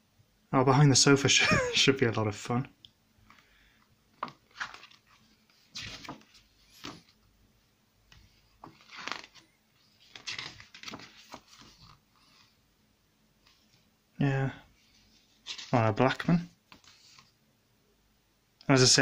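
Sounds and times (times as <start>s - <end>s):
paper pages rustling and turning: 4.1s - 7.2s, 8.1s - 12.6s, 14.8s - 17.4s.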